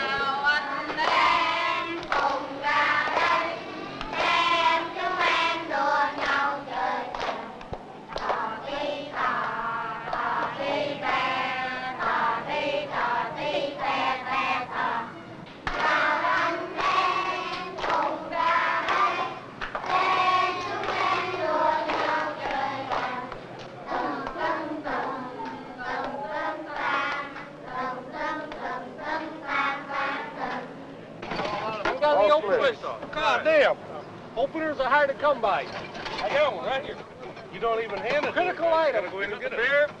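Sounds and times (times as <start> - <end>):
children singing: 0.1 - 7.5, 8.2 - 23.3, 23.9 - 30.8.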